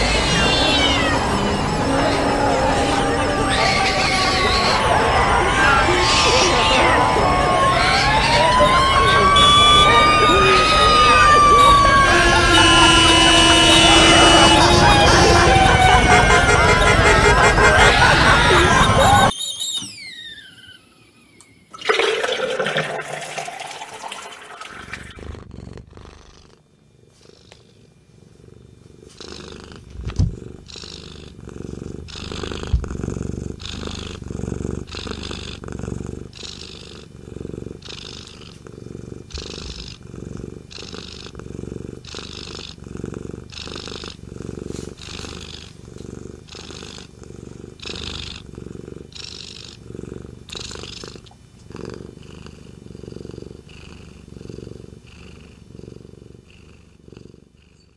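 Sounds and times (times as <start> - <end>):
cat purring: 0.0 - 5.1, 25.0 - 57.9.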